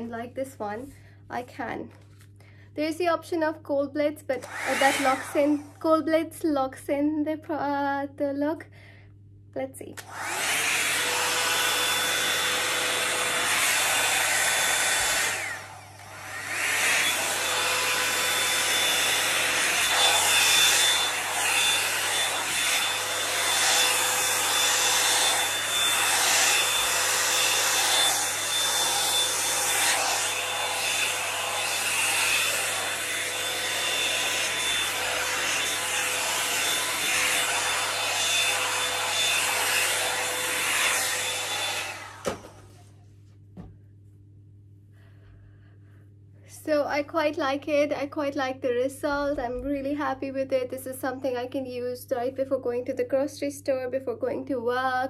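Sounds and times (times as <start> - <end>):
hot-air brush blowing with whine: 4.4 - 6.0, 10.0 - 42.8.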